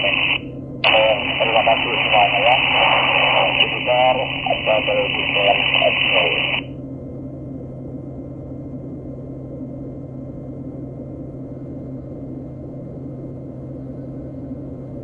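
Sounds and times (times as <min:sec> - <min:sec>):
propeller aircraft engine drone: 0:00.0 - 0:06.6.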